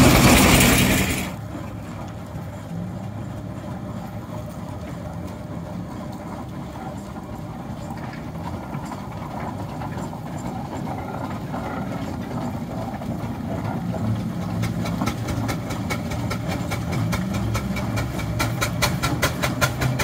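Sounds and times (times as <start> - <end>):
steam exhaust chuffing: 0.0 - 2.0, 6.2 - 20.0
steam traction engine rumbling: 0.0 - 20.0.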